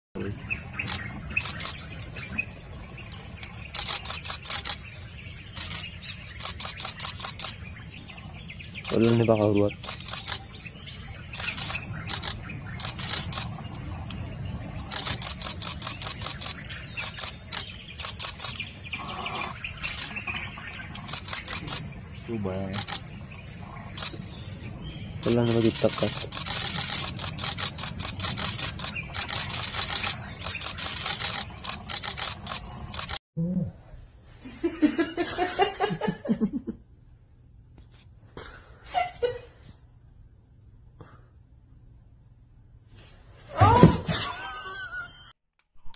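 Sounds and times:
birds chirping: 0.2s - 33.2s
person laughing: 34.6s - 36.8s, 38.9s - 39.5s, 44.0s - 45.3s.

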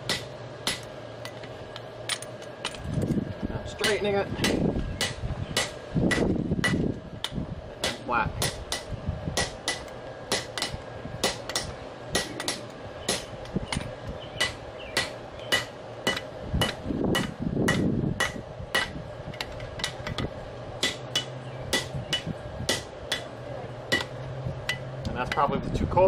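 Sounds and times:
hammer striking metal on anvil: 0.0s - 0.9s, 3.8s - 19.0s, 20.8s - 23.3s, 23.9s - 25.5s.

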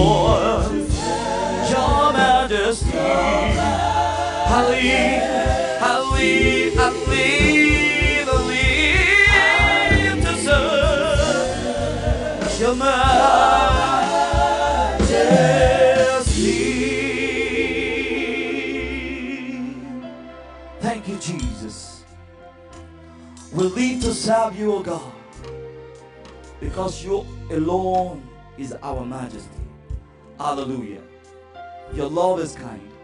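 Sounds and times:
steady low beat: 0.0s - 18.9s
gospel singing with band: 0.0s - 20.3s.

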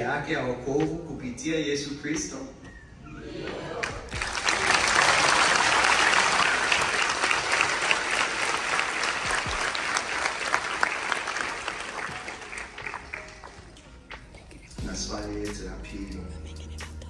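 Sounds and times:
large audience applauding: 3.8s - 13.9s.

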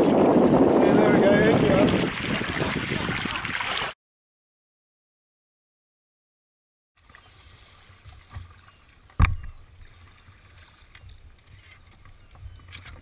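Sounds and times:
water sloshing against kayak hull: 0.0s - 3.9s, 7.0s - 13.0s
wind rumble on microphone: 0.0s - 3.9s
light knocks on kayak: 9.2s - 9.6s.

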